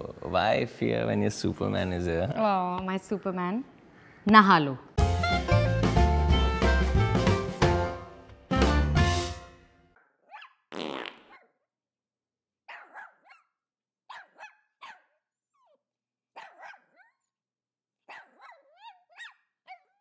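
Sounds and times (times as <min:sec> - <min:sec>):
small dog yipping and whining: 0:10.3 - 0:10.5, 0:18.1 - 0:20.0.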